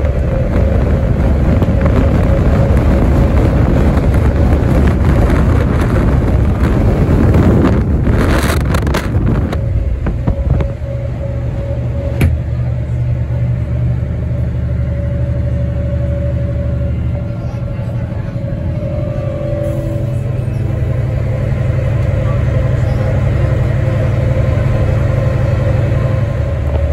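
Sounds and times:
wind buffeting microphone: 0:00.0 - 0:13.2
bus engine droning: 0:00.0 - 0:26.9
road noise: 0:00.0 - 0:26.9.

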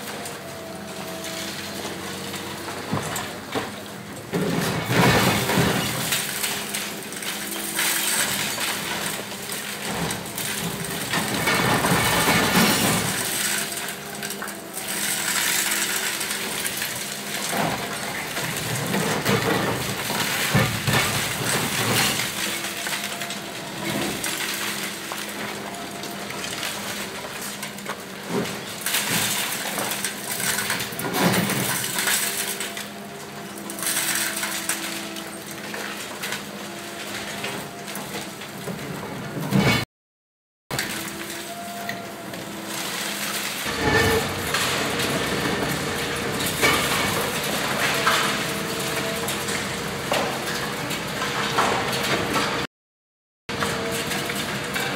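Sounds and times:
falling debris clinking: 0:04.4 - 0:27.8, 0:40.8 - 0:52.7
concrete cracking and crunching: 0:04.4 - 0:32.9.

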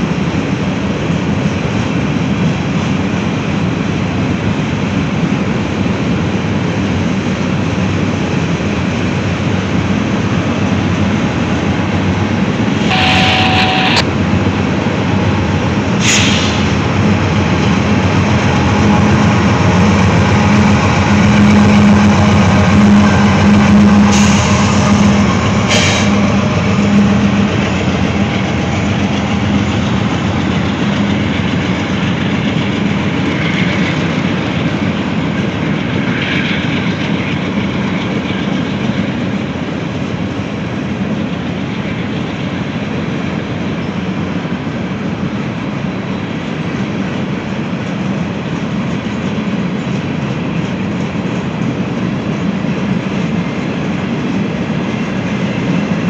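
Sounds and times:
diesel locomotive engine drone: 0:00.0 - 0:56.0
freight train rumbling on rails: 0:00.0 - 0:56.0
short squeal: 0:12.8 - 0:14.0.

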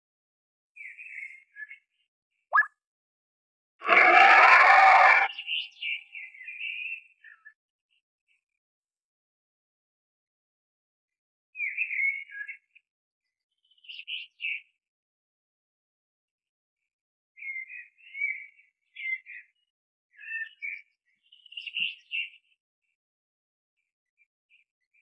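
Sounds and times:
small birds chirping: 0:20.2 - 0:22.5.

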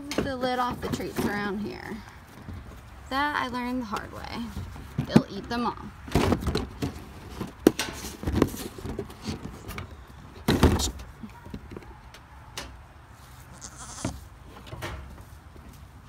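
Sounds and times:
goat bleating: 0:13.4 - 0:14.2.

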